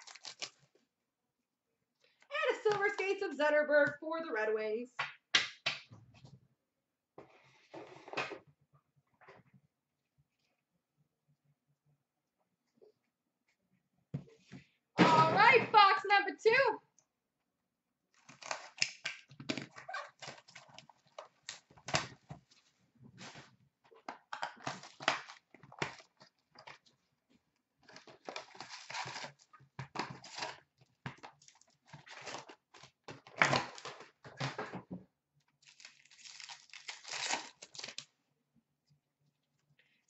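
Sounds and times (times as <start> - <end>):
foil wrapper crinkling: 0.0 - 0.7, 27.8 - 30.6, 35.6 - 38.1
wrapper tearing: 0.0 - 0.7, 27.9 - 29.4, 30.2 - 30.6, 35.6 - 38.1.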